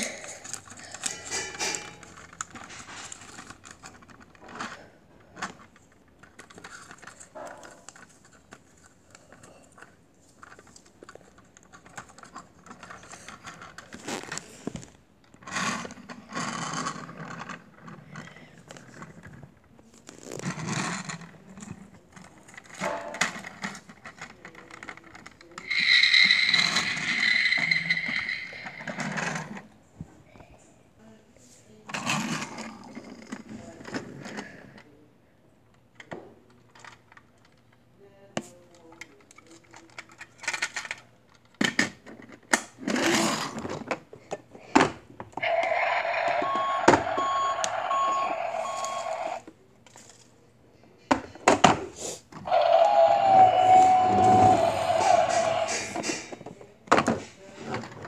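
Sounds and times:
toy truck rattling on wooden floor: 0:20.4 - 0:29.6.

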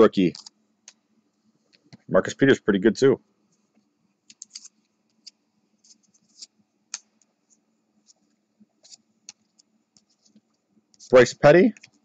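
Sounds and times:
cards clicking and snapping: 0:04.3 - 0:05.4.

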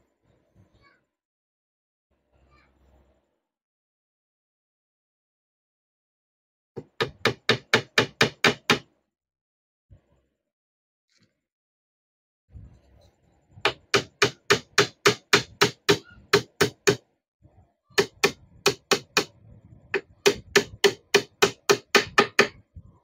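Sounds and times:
hammer striking nail: 0:06.8 - 0:08.9, 0:13.7 - 0:17.0, 0:18.0 - 0:19.3, 0:20.0 - 0:22.6.

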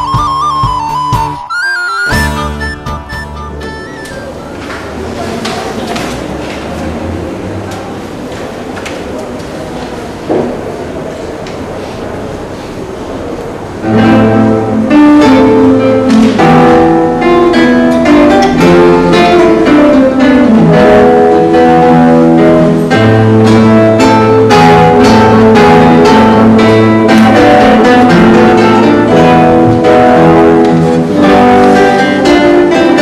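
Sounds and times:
classical guitars fingerpicking: 0:00.0 - 0:06.6, 0:13.4 - 0:33.0.

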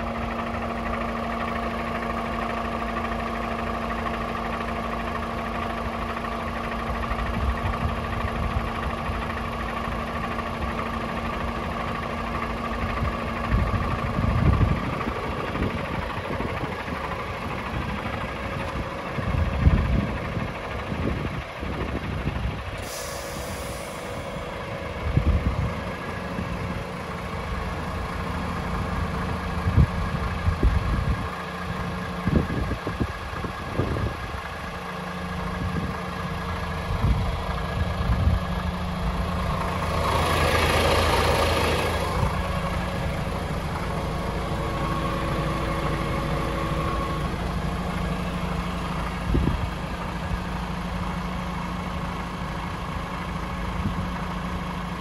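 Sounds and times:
diesel engine idling: 0:00.0 - 0:55.0
rush of hiss: 0:22.8 - 0:24.4.

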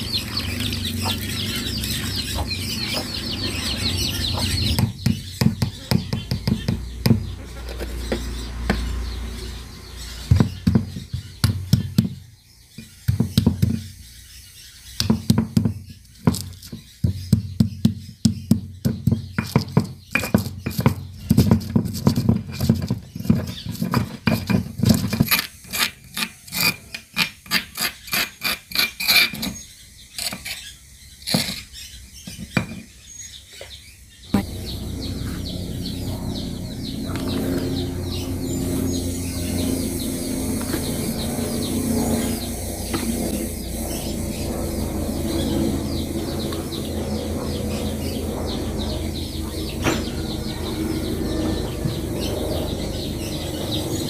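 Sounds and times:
steady low sound: 0:34.3 - 0:54.0.

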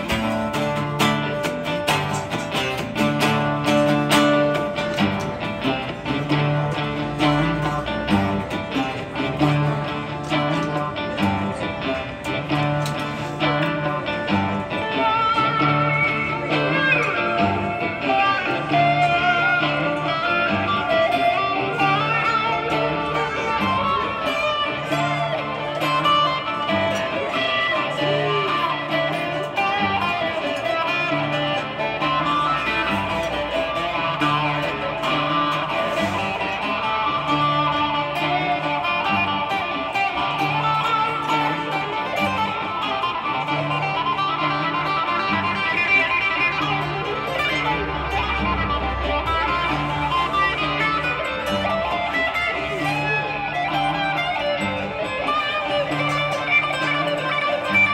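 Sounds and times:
acoustic guitar playing: 0:00.0 - 0:57.9.

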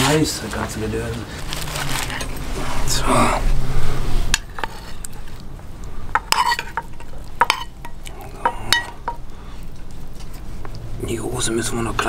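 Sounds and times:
metal spoon clinking on pot: 0:06.1 - 0:09.3.

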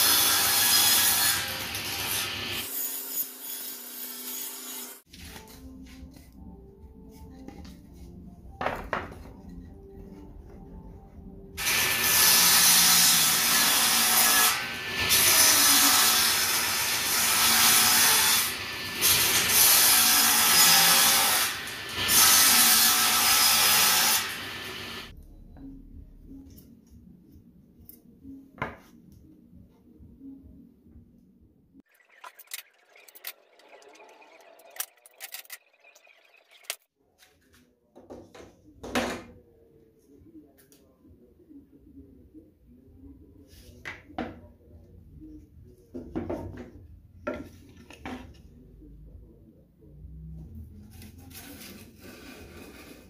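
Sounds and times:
circular saw cutting wood: 0:11.6 - 0:25.1.

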